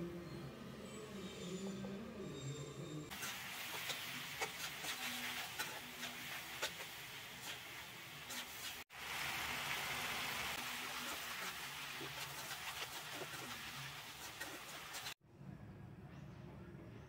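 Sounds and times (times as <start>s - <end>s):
spatula scraping a pan: 3.1s - 8.9s, 10.6s - 15.2s
vegetables sizzling in oil: 3.1s - 15.2s.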